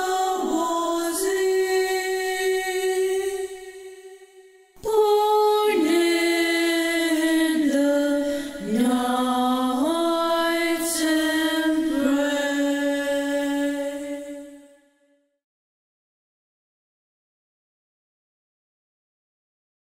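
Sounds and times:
choir singing a carol a cappella: 0:00.0 - 0:14.6.

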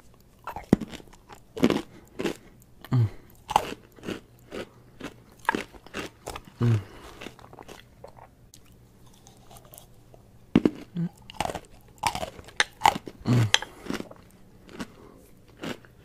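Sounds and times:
soft chewing: 0:00.0 - 0:16.0
crunching cornstarch: 0:03.4 - 0:08.2, 0:10.6 - 0:16.0.

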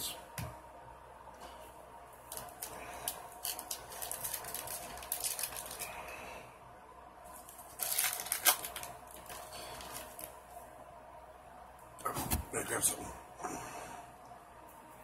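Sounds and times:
foil wrapper crinkling and tearing: 0:02.3 - 0:06.0, 0:07.4 - 0:10.4.

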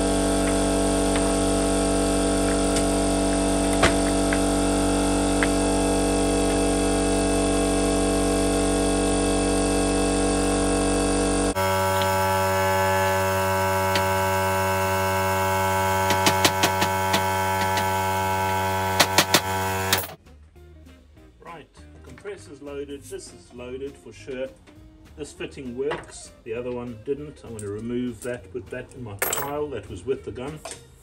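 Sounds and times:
air compressor humming: 0:00.0 - 0:20.2.

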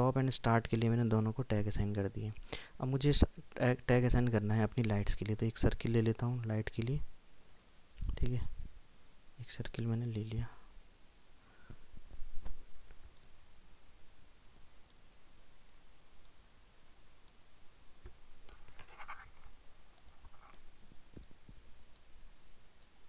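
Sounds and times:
computer mouse clicking: 0:15.7 - 0:19.3, 0:20.0 - 0:22.1.

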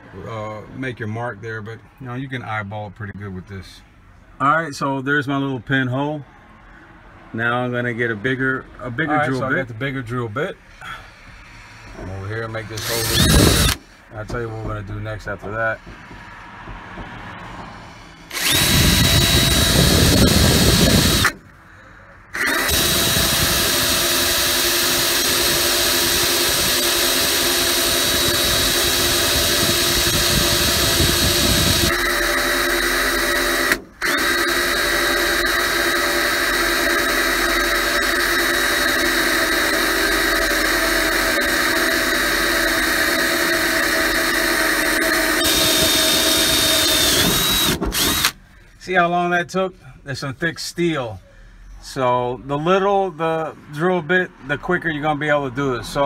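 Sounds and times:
cordless drill boring steel: 0:12.6 - 0:13.9, 0:18.3 - 0:21.4, 0:22.4 - 0:48.4.

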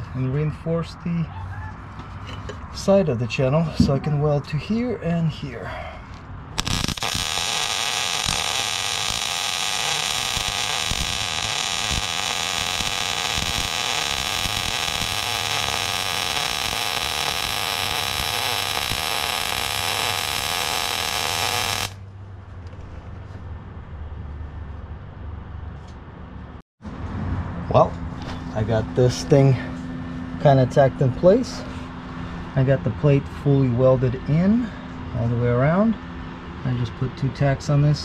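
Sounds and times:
low hum: 0:05.6 - 0:23.3
welder arc crackling: 0:06.6 - 0:22.0.

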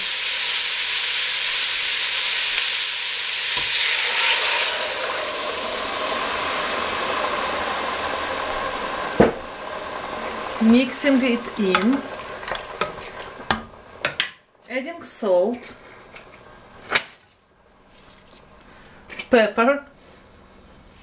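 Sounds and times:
vegetables sizzling in hot oil: 0:00.0 - 0:14.0
water poured into pot: 0:01.9 - 0:07.7, 0:09.4 - 0:13.6.

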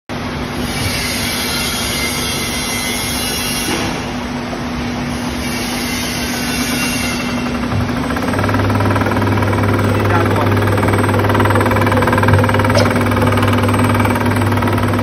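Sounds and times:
label cutting machine running: 0:06.6 - 0:15.0.

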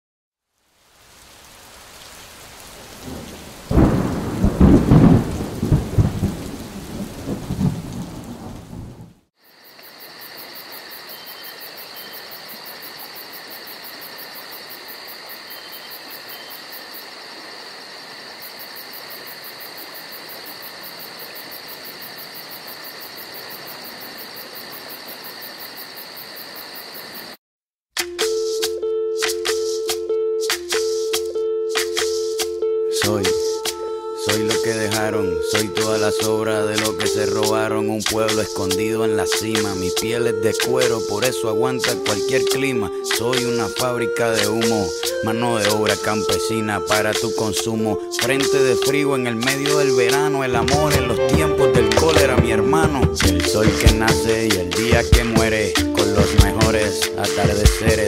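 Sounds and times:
rain hissing: 0:00.4 - 0:09.3
thunder rumbling: 0:02.8 - 0:09.3
music: 0:28.0 - 0:58.0.

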